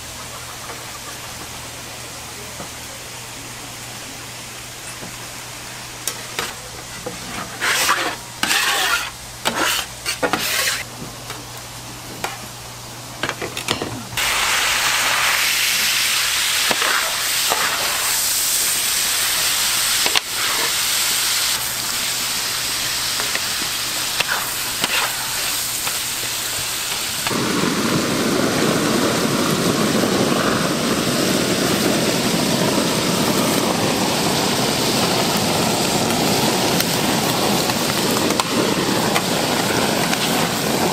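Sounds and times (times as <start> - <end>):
meat sizzling on a grill: 4.7 - 10.9, 14.2 - 40.9
utensil scraping a grill: 6.0 - 10.9, 16.6 - 27.3.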